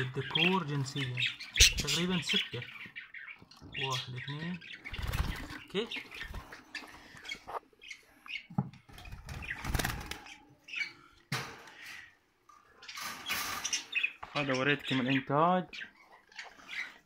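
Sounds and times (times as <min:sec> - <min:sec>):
budgerigars fluttering wings in cage: 0:04.9 - 0:05.6, 0:09.0 - 0:10.4.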